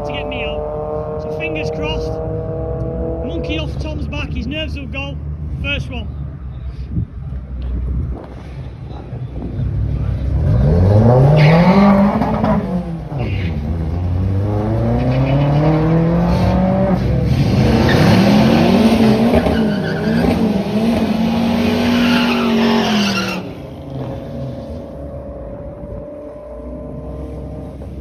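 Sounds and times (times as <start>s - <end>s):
engine revving: 0.0s - 4.0s, 10.1s - 27.8s
drag car accelerating: 0.0s - 4.2s, 8.9s - 28.0s.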